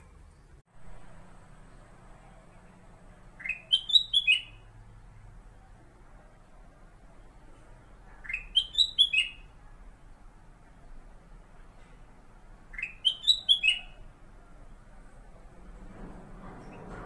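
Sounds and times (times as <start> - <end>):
bird singing whistled notes: 3.4 - 4.7, 8.2 - 9.6, 12.7 - 14.1.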